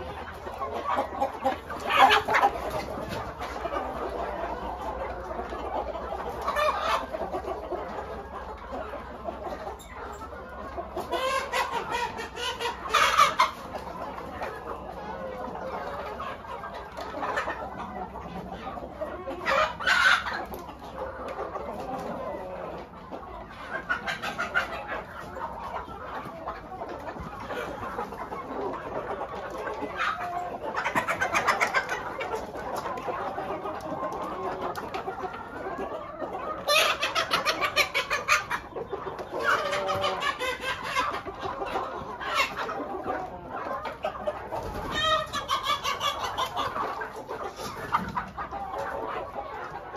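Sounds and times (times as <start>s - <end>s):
hens and roosters clucking: 0.0s - 49.9s.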